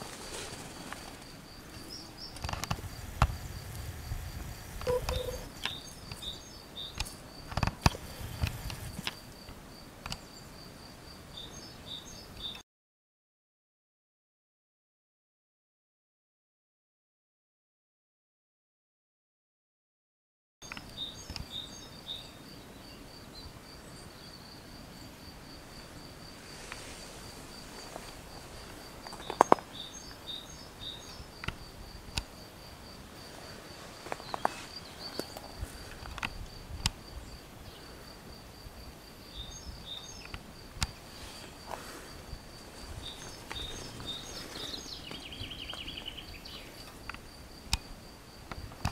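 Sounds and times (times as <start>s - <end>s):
insect chirping: 0.1s - 12.6s, 20.6s - 48.9s
short bird calls: 4.8s - 7.0s.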